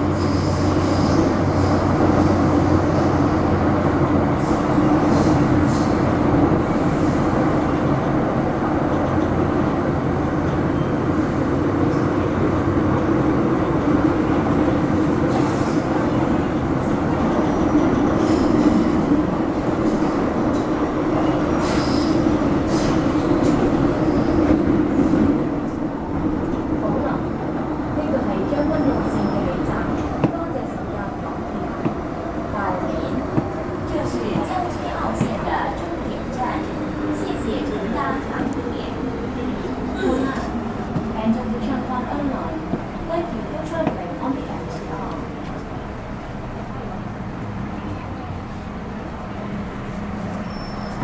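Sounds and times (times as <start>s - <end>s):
train wheels rumbling on rail: 0.0s - 51.0s
brief high squeals: 50.4s - 51.0s.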